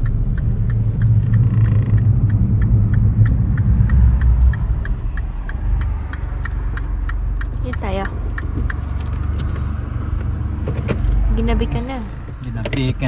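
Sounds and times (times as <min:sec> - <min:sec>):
fast regular ticking: 0:00.0 - 0:09.6
car engine and road rumble: 0:00.0 - 0:13.0.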